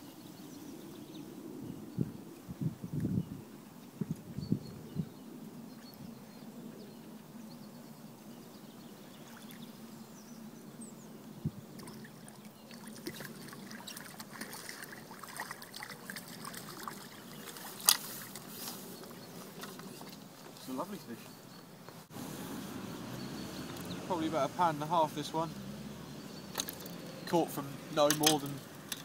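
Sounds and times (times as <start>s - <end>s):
fish thrashing and splashing water: 11.8s - 18.5s.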